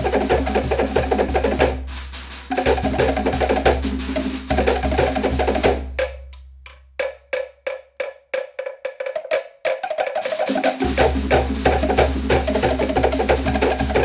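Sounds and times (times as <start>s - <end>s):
slit drum ensemble playing: 0.0s - 14.0s.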